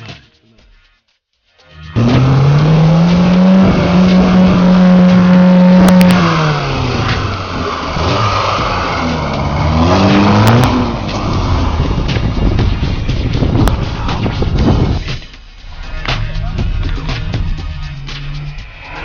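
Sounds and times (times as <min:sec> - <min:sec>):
car engine revving hard: 0:02.0 - 0:12.4.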